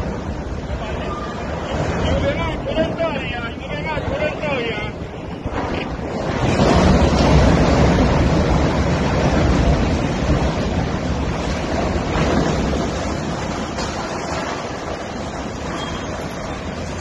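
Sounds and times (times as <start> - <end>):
crane collapsing with rumbling crash: 0.0 - 17.0
wind buffeting microphone: 0.0 - 17.0.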